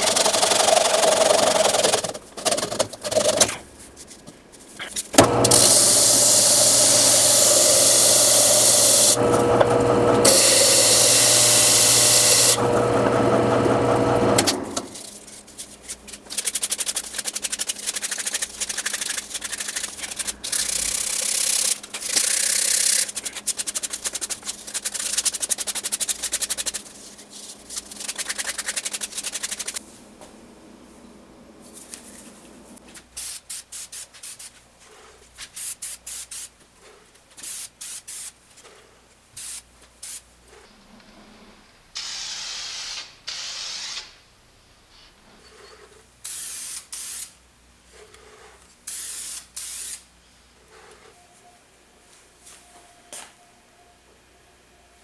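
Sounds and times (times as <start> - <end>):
disc sander running: 5.2 - 15.0
hand sanding on wood: 15.5 - 29.8
faint hum: 29.6 - 32.9, 50.2 - 55.0.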